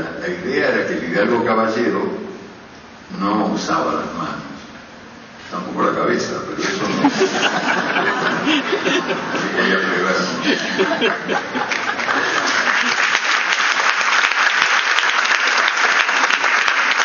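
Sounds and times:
voices: 5.5s - 12.4s
people laughing: 6.6s - 13.2s
audience clapping: 10.5s - 17.0s.

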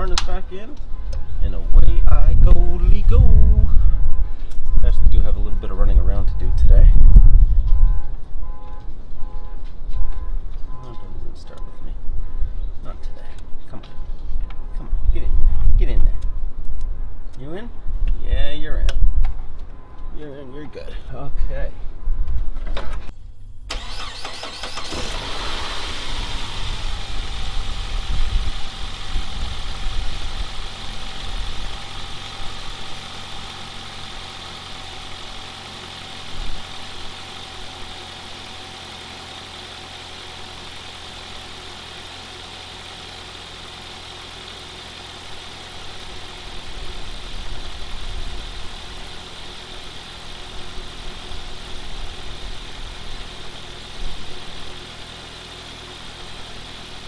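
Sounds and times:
car engine starting and idling: 23.0s - 57.0s.

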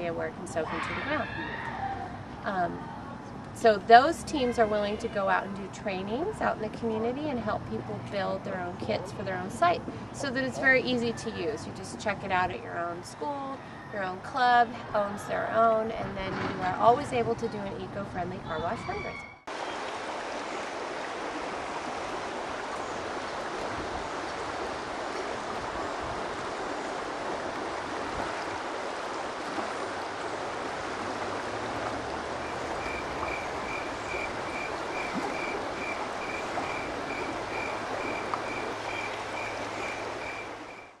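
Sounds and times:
stream water rushing: 19.5s - 41.0s.

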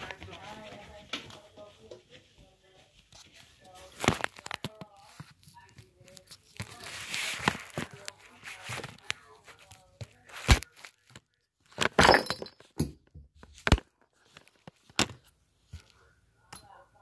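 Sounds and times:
phone handling rubbing and rustling: 3.9s - 12.7s, 13.4s - 15.9s.

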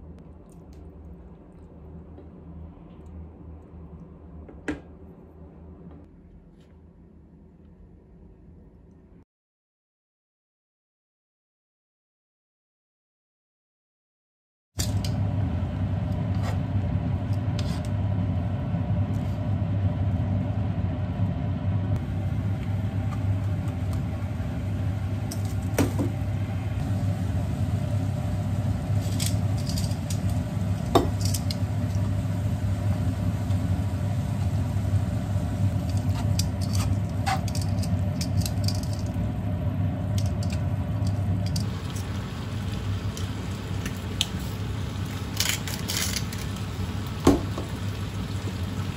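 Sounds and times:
food bubbling and sizzling in pan: 26.7s - 48.9s.

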